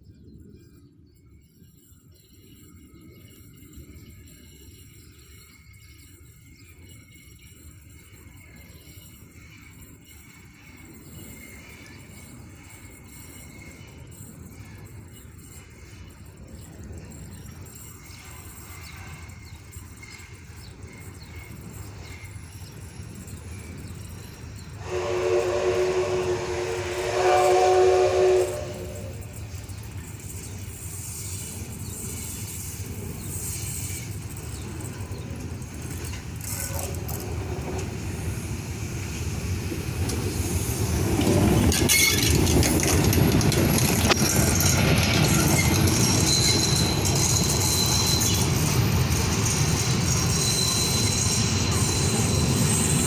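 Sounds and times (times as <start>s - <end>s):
steam locomotive passing: 2.0s - 53.0s
steam whistle blast: 24.8s - 29.4s.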